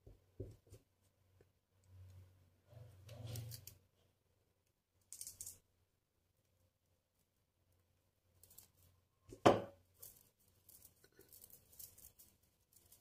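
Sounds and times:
beads clicking: 5.0 - 5.6
hissing rustle of beads: 9.9 - 13.0.

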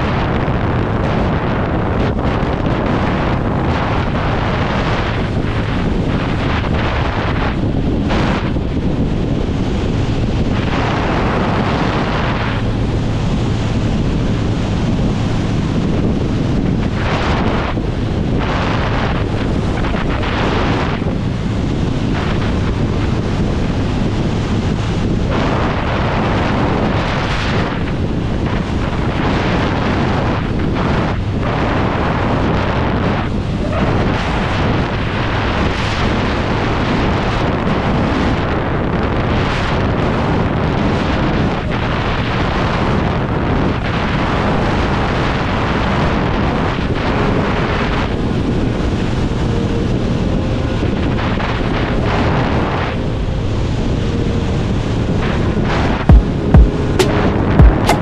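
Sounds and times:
motorcycle engine humming: 0.0 - 29.2, 46.4 - 58.0
wind rushing over microphone: 0.0 - 58.0.

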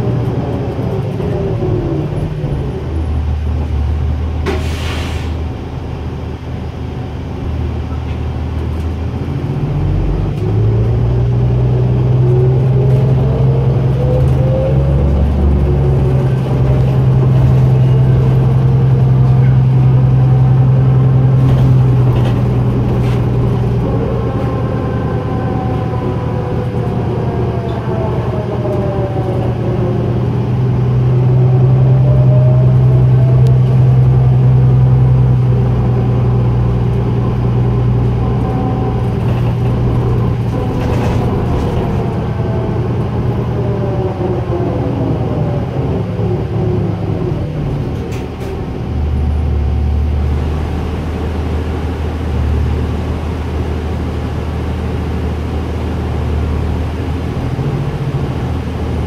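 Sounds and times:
bus diesel engine drone: 0.0 - 59.0.

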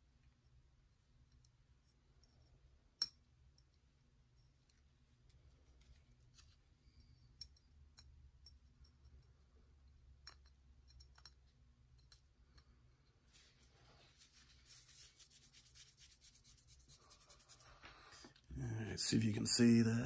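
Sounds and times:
faint clicks and handling noise: 3.6 - 9.4.

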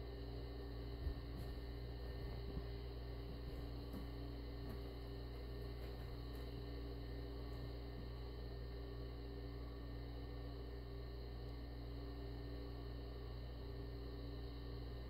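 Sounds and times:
low electrical hum: 0.0 - 15.0
cats scuffling on carpet: 0.9 - 8.2.

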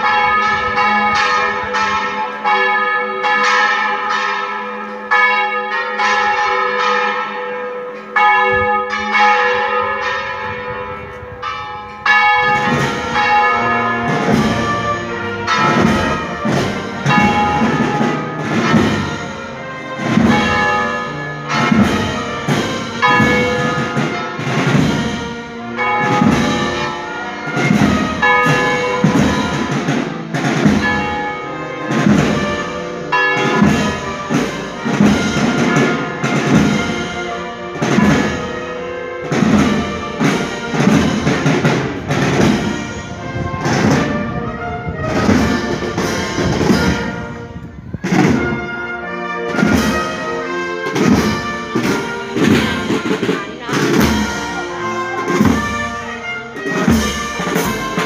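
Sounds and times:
church bells pealing: 0.0 - 58.0
deep bell strike: 20.2 - 27.0.

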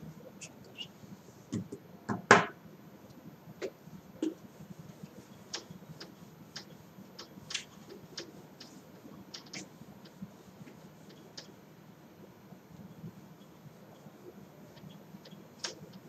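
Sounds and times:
duster wiping whiteboard: 3.9 - 11.5.

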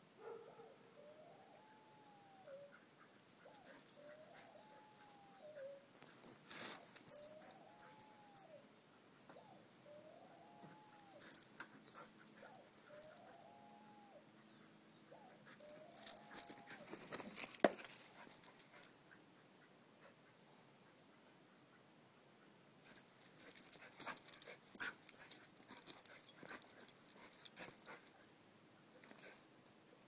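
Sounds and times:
dog whining: 3.4 - 5.9, 7.0 - 8.6, 9.4 - 14.3, 15.1 - 17.0
sharp clicks and scuffling: 15.6 - 19.0.

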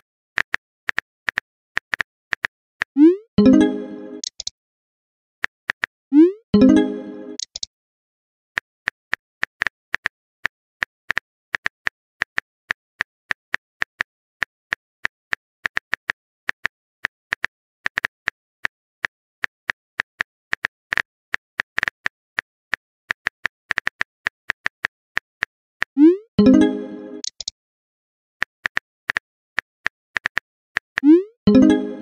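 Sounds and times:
keyboard typing clicks: 3.4 - 4.5, 6.6 - 7.7, 26.4 - 27.5.

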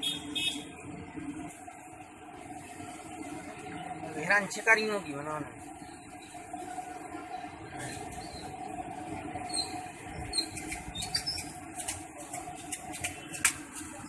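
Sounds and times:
food deep-frying in oil: 0.0 - 14.0
high squeaks: 9.5 - 11.6.

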